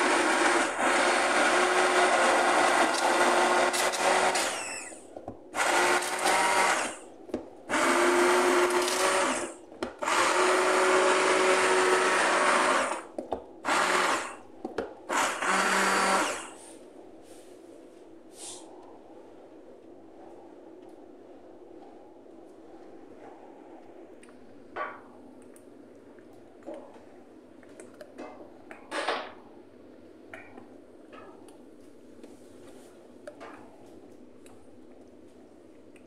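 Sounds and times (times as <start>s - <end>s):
stick blender motor: 0.0s - 5.0s, 5.6s - 7.0s, 7.7s - 14.4s, 15.1s - 16.6s.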